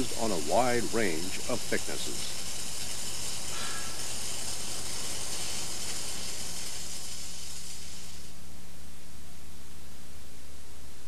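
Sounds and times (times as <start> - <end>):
welding arc hissing: 0.0 - 8.5.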